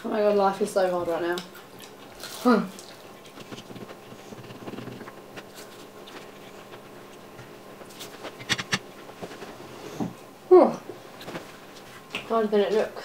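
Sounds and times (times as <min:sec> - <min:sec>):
people chewing food: 0:00.8 - 0:10.2.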